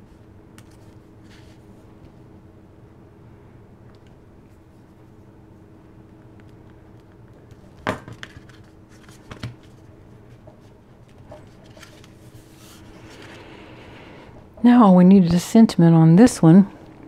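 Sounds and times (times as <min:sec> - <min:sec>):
paper rustle: 0:08.1 - 0:09.9, 0:10.6 - 0:13.5.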